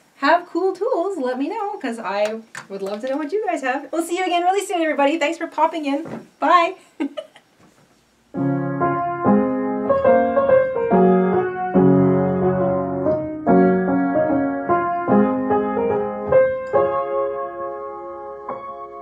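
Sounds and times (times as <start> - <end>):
light piano music: 8.3 - 19.0.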